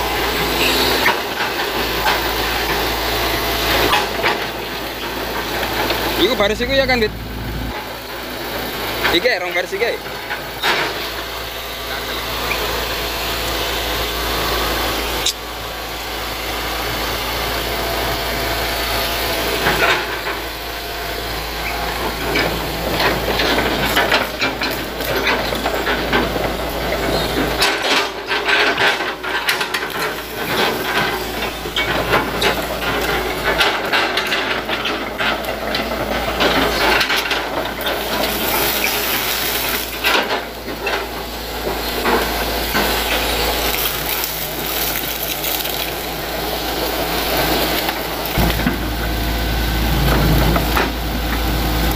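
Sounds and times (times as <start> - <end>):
excavator diesel engine running: 0.0 - 51.9
roots cracking and crunching: 43.0 - 48.6.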